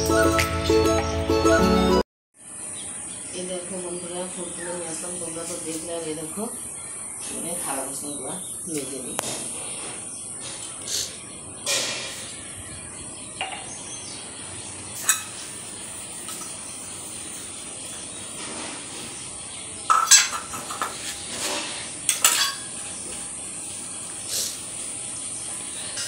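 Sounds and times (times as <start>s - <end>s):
steel dishes clinking: 15.0s - 15.4s, 19.9s - 21.0s, 22.1s - 22.8s.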